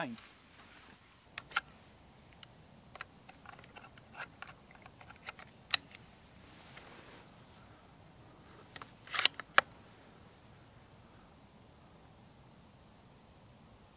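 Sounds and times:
metallic rifle clicks: 0:01.4 - 0:01.7, 0:02.3 - 0:06.0, 0:08.7 - 0:09.7.

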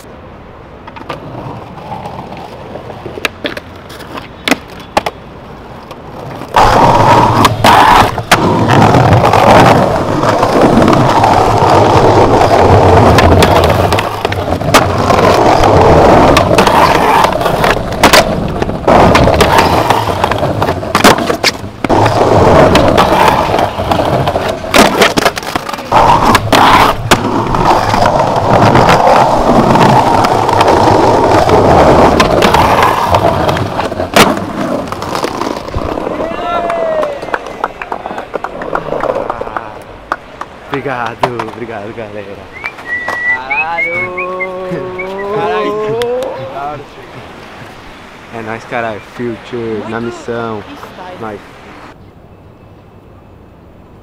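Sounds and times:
skateboard wheels rolling on stone: 0:00.0 - 0:51.4
skateboard clacks: 0:00.8 - 0:44.0.

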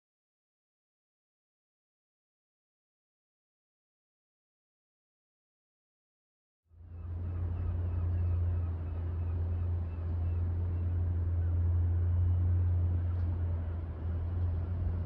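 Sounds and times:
low mechanical rumble: 0:06.7 - 0:15.0.

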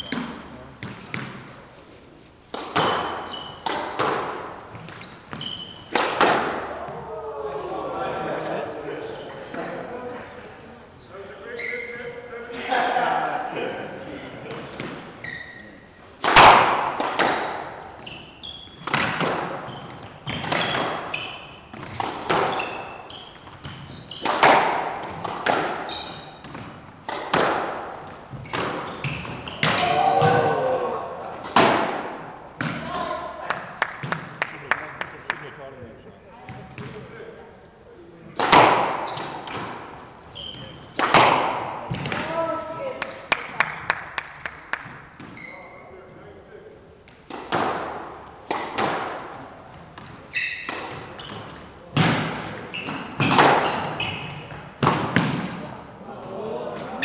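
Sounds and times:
squash ball smacks echoing: 0:00.0 - 0:01.5, 0:02.5 - 0:05.0, 0:05.9 - 0:07.0, 0:16.2 - 0:17.8, 0:18.8 - 0:22.7, 0:23.5 - 0:30.6, 0:31.3 - 0:32.9, 0:33.5 - 0:34.6, 0:38.4 - 0:40.0, 0:40.6 - 0:45.4, 0:47.2 - 0:55.6
shoes squeaking on wooden floor: 0:02.2 - 0:06.0, 0:11.4 - 0:12.3, 0:14.6 - 0:16.1, 0:17.7 - 0:30.6, 0:38.9 - 0:39.6, 0:40.2 - 0:41.0, 0:45.2 - 0:46.1, 0:49.6 - 0:51.8, 0:52.6 - 0:54.7.

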